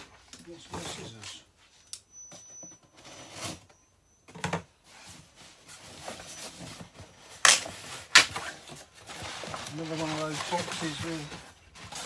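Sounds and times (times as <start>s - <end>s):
scissors cutting packing tape: 7.4s - 8.5s.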